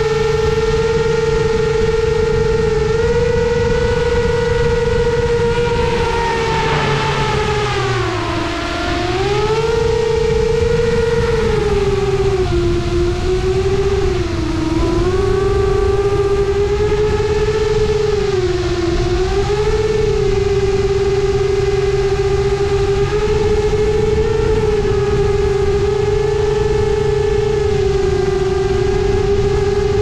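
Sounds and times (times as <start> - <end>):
drone motors whining: 0.0 - 30.0
wind rushing: 3.9 - 14.2.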